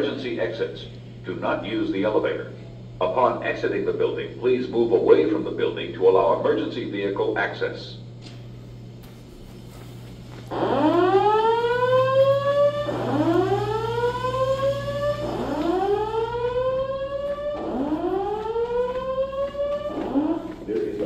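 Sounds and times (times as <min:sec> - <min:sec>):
steady low hum: 0:00.0 - 0:21.0
rising whoop alarm tone: 0:10.5 - 0:20.6.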